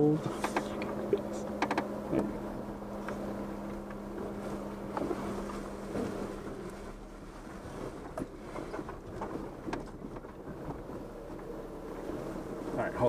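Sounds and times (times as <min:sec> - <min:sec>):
vehicle engine running low: 0:00.0 - 0:13.0
light clicks and knocks: 0:00.2 - 0:02.4.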